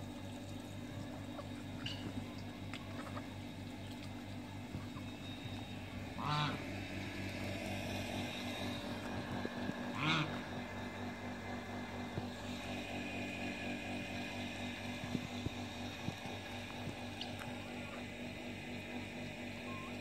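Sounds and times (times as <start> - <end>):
steady low hum: 0.0 - 20.0
harsh poultry calls: 6.0 - 6.7, 9.8 - 10.6.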